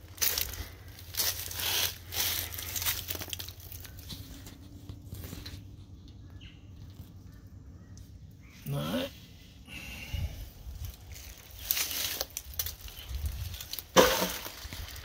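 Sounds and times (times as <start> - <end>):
dry leaves rustling and crackling: 0.0 - 5.8, 10.5 - 15.0.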